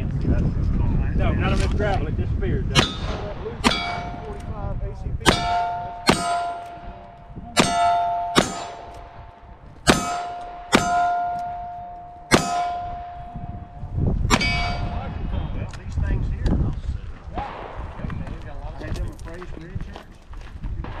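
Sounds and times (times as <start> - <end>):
steel target ringing: 2.8 - 4.6, 5.2 - 15.7.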